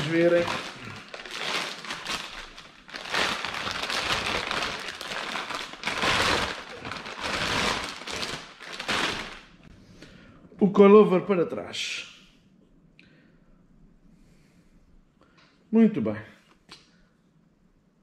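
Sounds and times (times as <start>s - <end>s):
plastic bag crinkling: 0.0s - 9.6s.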